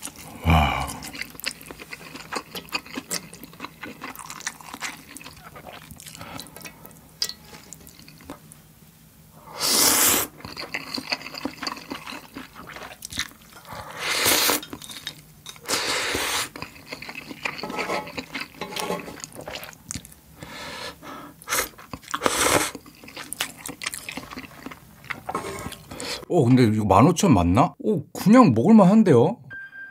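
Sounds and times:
chewing: 0:00.0 - 0:08.5, 0:10.2 - 0:20.5, 0:21.4 - 0:26.2
noodles slurped: 0:13.9 - 0:19.7.

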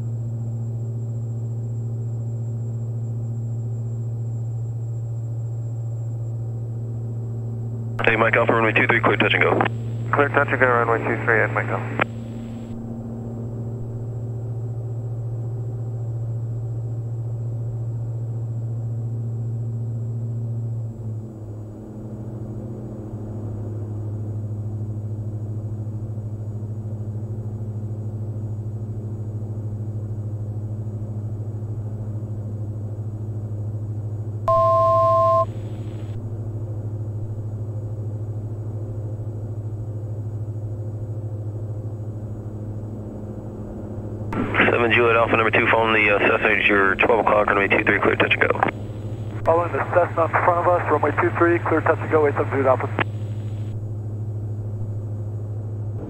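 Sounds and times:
aircraft cabin engine drone: 0:00.0 - 0:56.0
electronic two-tone beep: 0:34.5 - 0:35.5.

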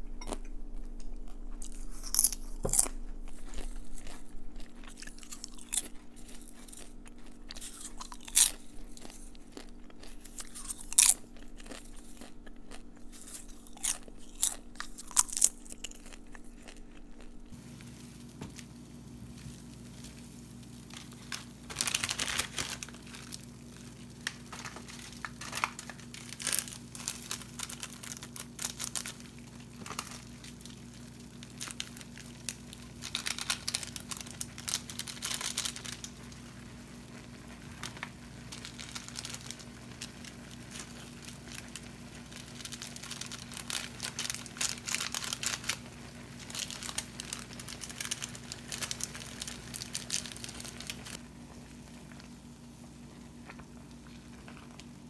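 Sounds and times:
low hum: 0:00.0 - 0:22.0
plastic sachets crinkling: 0:00.3 - 0:51.2.

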